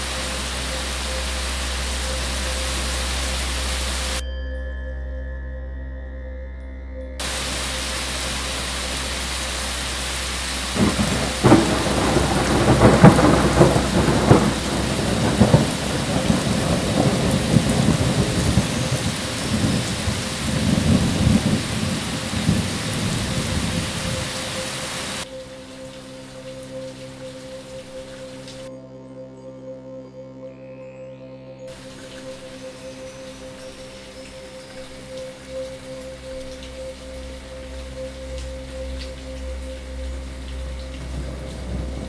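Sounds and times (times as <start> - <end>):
heavy rain: 0.0 - 4.2, 7.2 - 28.7, 31.7 - 42.0
thunder rumbling and cracking: 10.2 - 25.2.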